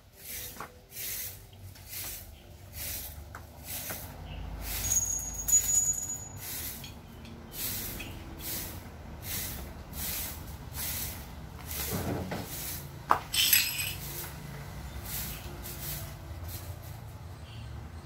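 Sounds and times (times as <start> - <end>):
bright metal ringing clink: 13.4 - 14.0.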